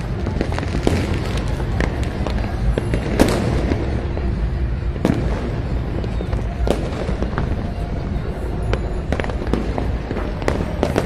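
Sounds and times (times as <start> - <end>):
firecrackers popping and cracking: 0.0 - 11.0.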